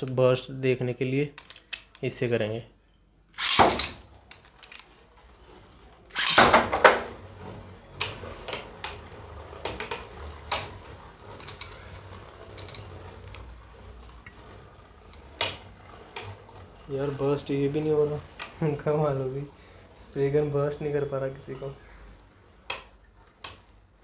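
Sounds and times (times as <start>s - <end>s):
ripcord launcher zip: 3.4s - 4.1s, 4.8s - 19.5s
spinning tops clacking: 3.4s - 24.0s
spinning tops whirring: 3.4s - 24.0s.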